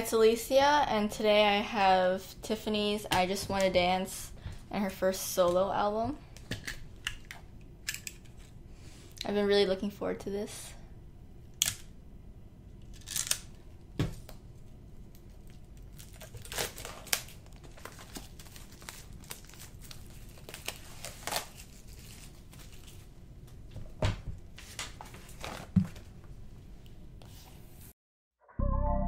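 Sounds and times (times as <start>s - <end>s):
plastic wrap tearing and crinkling: 12.8s - 13.6s, 15.2s - 23.2s
utility knife cutting plastic wrap: 16.0s - 17.4s.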